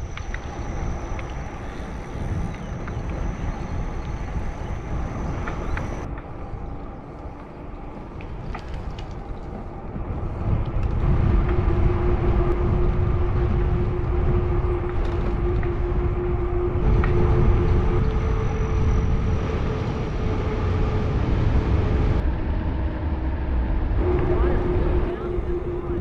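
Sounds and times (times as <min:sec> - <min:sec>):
small ticks: 0:00.0 - 0:06.3
bicycle tyres on pavement: 0:00.0 - 0:16.1
steady hum: 0:00.0 - 0:26.0
wind on microphone: 0:00.0 - 0:26.0.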